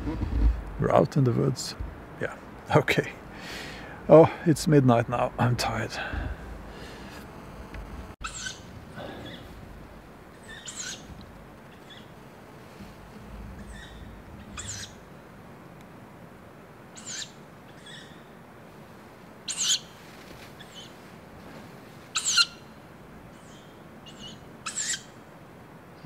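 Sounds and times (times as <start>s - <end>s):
bird singing high phrases: 8.2s - 9.6s, 10.4s - 12.1s, 13.6s - 15.0s, 17.0s - 18.2s.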